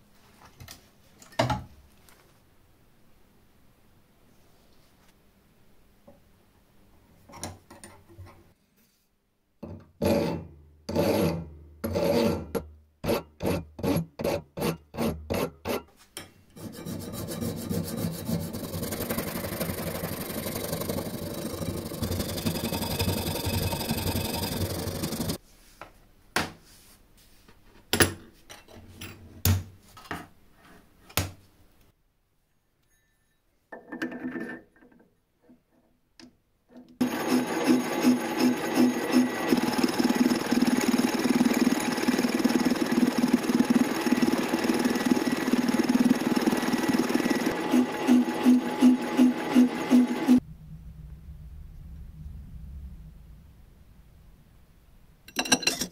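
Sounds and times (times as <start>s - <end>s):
hand file rasping on metal bar: 10.0s - 15.9s, 16.6s - 25.4s.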